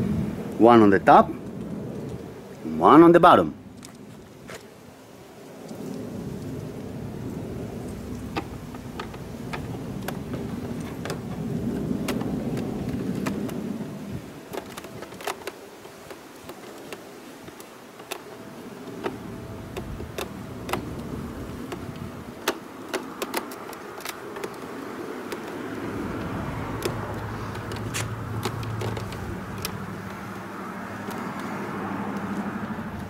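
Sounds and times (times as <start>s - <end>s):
passing vehicle rumble: 0.0s - 14.6s, 18.3s - 33.0s
screwdriver clicking on plastic: 14.5s - 30.2s, 31.0s - 32.3s.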